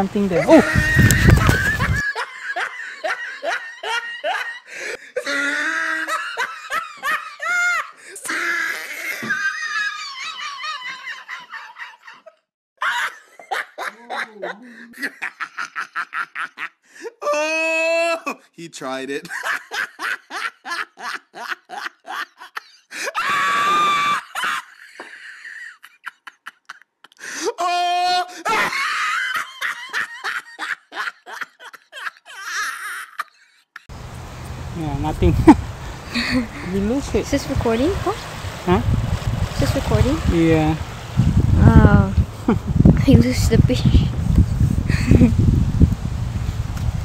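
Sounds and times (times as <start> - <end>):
person laughing: 0.3 - 18.4, 19.2 - 33.9, 35.2 - 37.0, 41.6 - 42.8, 44.8 - 45.4
man yelling: 17.2 - 18.4, 27.4 - 28.7.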